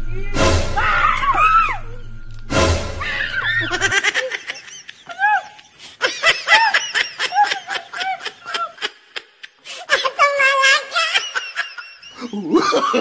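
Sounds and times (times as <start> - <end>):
sudden loud hit: 0.0 - 3.9
high-pitched laughter: 3.0 - 13.0.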